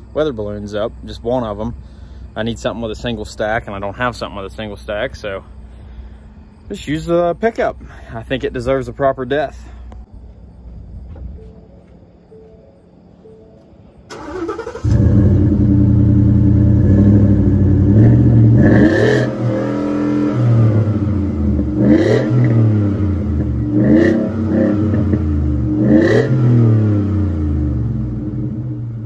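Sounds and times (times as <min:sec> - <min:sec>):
pickup engine starting: 0:14.1 - 0:21.8
engine idling and revving: 0:14.2 - 0:29.0.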